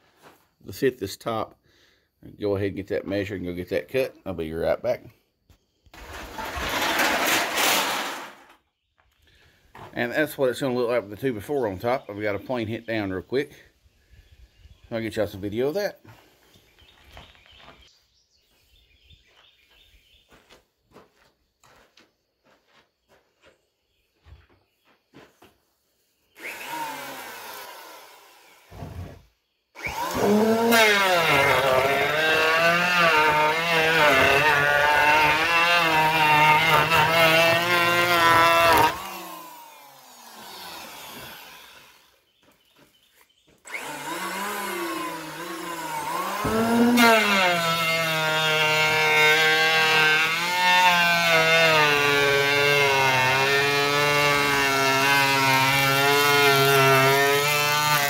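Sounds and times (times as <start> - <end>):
electric hand planer shaving wood: 26.4 - 29.2, 29.8 - 42.2, 43.7 - 58.0.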